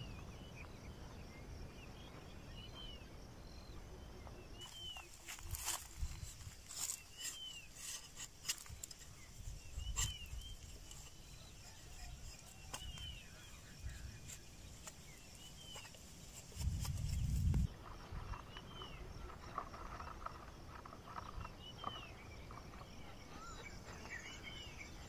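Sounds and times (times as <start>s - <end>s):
blade scraping plant bark: 4.6s - 13.2s
bird calling: 18.3s - 25.0s.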